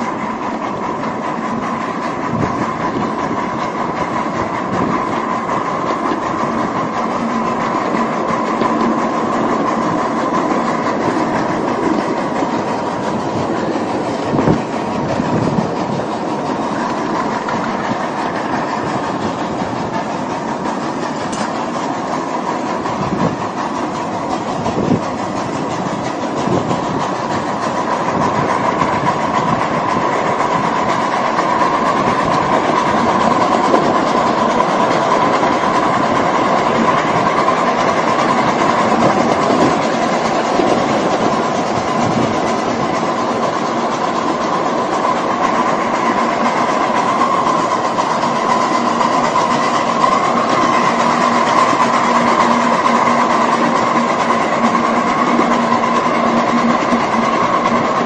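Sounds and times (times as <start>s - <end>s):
train wheels rolling on rail: 0.0s - 58.0s.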